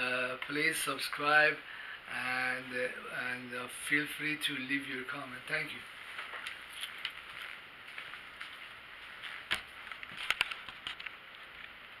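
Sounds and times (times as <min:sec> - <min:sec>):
steady hiss: 0:00.0 - 0:12.0
rustling handling noise: 0:05.5 - 0:11.8.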